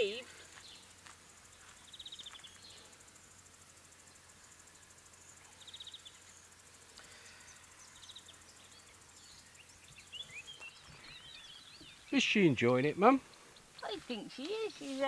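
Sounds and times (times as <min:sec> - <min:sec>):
faint high hiss: 0:00.0 - 0:15.0.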